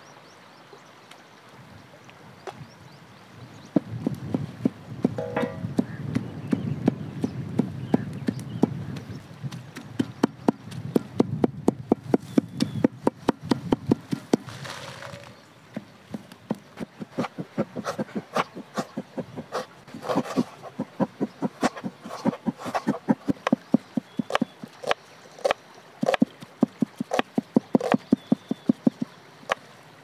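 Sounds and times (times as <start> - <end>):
cleaver chopping meat on wood: 4.6 - 8.8, 9.5 - 14.4, 21.1 - 29.0.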